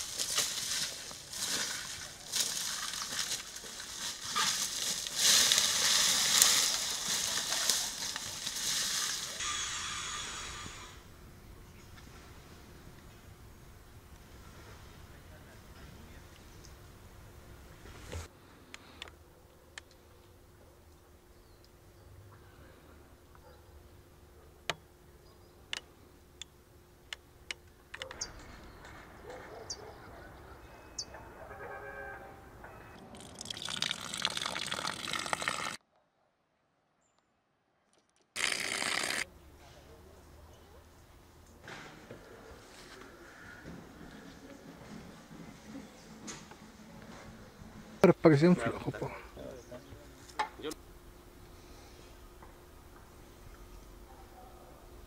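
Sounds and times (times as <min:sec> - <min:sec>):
rustling: 0:00.0 - 0:09.4
rake scraping through dry leaves: 0:00.0 - 0:10.7.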